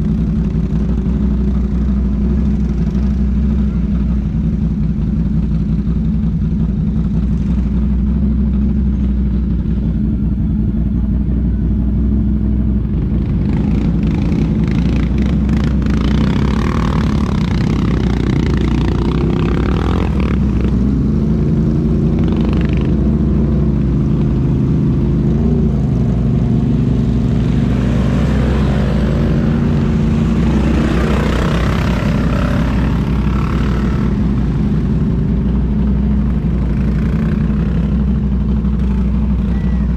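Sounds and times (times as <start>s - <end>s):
engine running steadily: 0.0s - 39.9s
quads revving through water: 25.0s - 39.9s.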